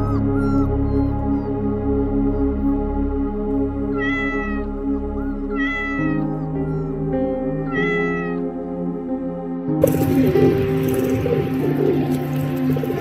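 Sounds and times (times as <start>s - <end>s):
kitten meowing: 0.0s - 1.1s, 3.9s - 8.5s
background music: 0.0s - 13.0s.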